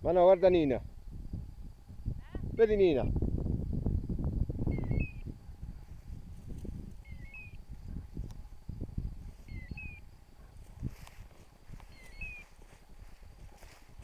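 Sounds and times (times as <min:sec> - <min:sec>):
footsteps through tall grass: 0:05.7 - 0:14.0.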